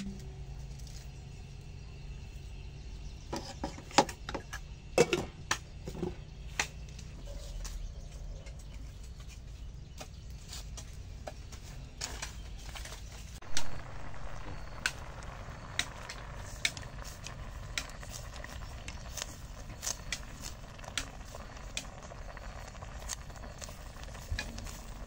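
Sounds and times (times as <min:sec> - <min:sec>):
low background hum: 0:00.0 - 0:09.0
wood fire crackling: 0:05.5 - 0:25.0.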